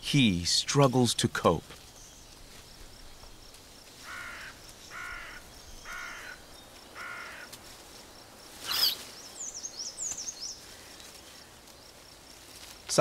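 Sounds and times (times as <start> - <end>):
harsh crow-like calls: 4.0 - 7.6
quick high chirps: 8.6 - 9.0.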